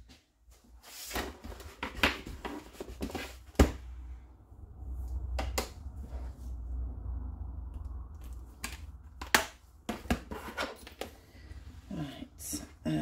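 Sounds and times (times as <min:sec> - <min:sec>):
low rumble: 0:03.9 - 0:09.2.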